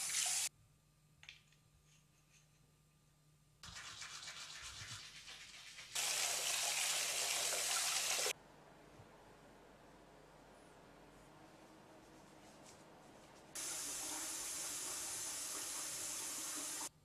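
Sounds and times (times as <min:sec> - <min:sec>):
tap water running into basin: 0:03.6 - 0:08.3, 0:13.6 - 0:16.9.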